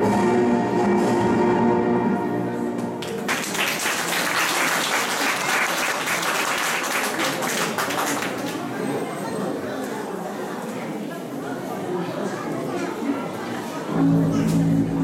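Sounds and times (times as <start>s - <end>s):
music: 0.0s - 3.3s, 14.0s - 15.0s
audience applauding: 3.0s - 8.7s.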